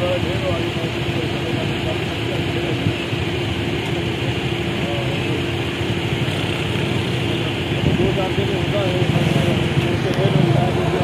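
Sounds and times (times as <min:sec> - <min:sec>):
motorcycle engines idling: 0:00.0 - 0:11.0
faint voices: 0:04.1 - 0:11.0.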